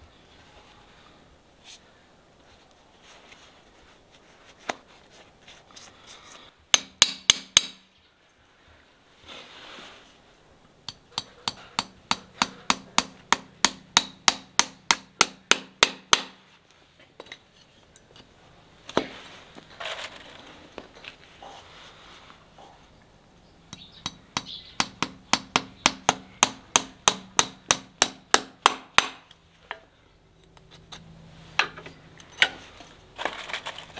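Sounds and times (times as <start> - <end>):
hammer striking horseshoe: 6.7 - 7.9, 10.9 - 16.4, 23.7 - 29.3.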